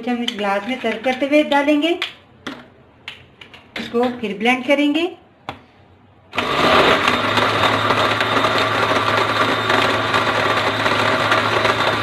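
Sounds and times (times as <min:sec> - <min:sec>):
blender crushing ice: 0:06.4 - 0:12.0.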